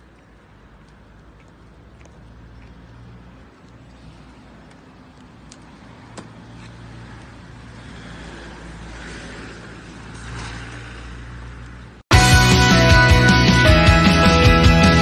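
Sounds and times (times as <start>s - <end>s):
road traffic hum: 0.0s - 15.0s.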